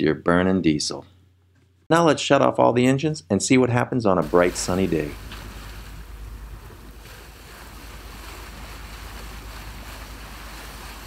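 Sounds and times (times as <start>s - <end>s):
water rushing along hull: 4.2s - 11.0s.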